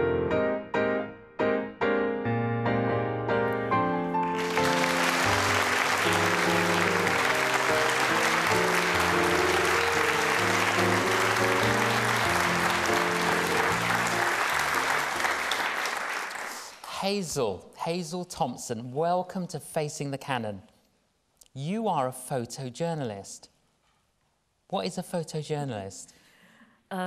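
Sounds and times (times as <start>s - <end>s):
background music with held notes: 0.0s - 15.5s
audience applauding: 4.2s - 16.9s.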